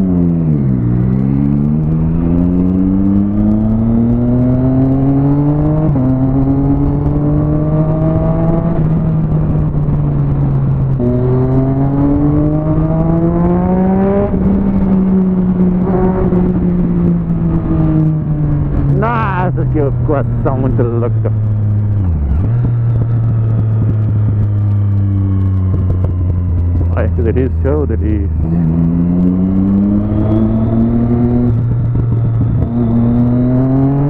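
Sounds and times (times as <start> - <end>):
motorcycle engine accelerating: 0.0 - 34.0.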